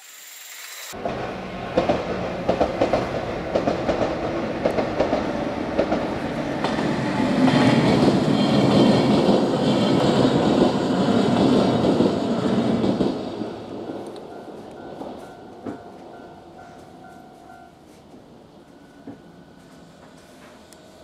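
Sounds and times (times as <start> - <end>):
train wheels clacking over rail joints: 1.0 - 17.0.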